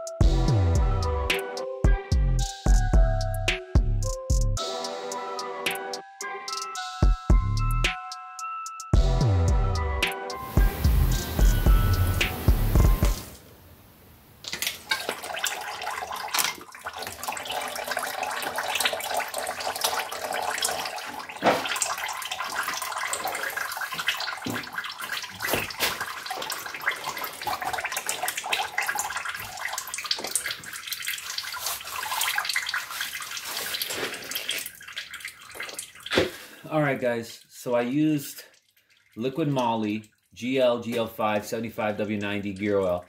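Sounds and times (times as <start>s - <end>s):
oil draining and splashing: 14.4s - 36.7s, 37.4s - 43.0s.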